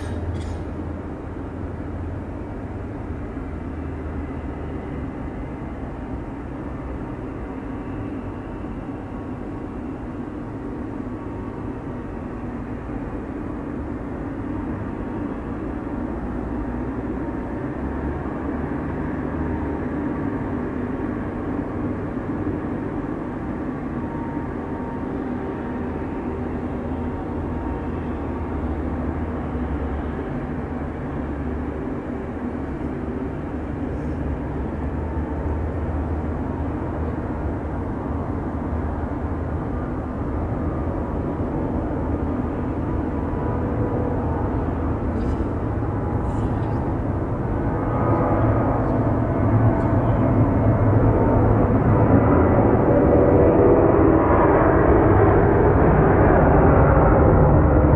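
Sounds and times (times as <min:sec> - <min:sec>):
deep drone: 0:00.0 - 0:57.9
jet aircraft noise: 0:19.6 - 0:57.9.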